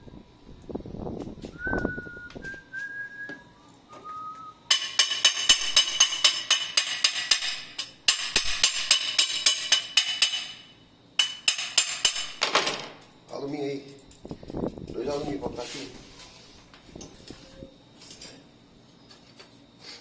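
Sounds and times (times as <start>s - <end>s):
person whistling: 1.5s - 4.7s
hammer tapping on steel: 4.7s - 10.6s, 11.2s - 12.4s.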